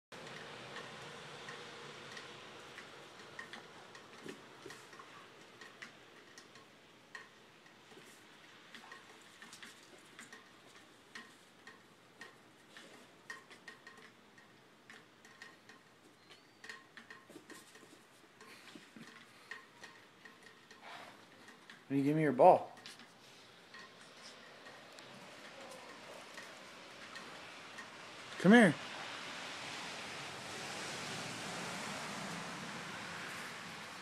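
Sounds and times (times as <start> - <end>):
faint light ticks and clicks: 0.2 - 21.9.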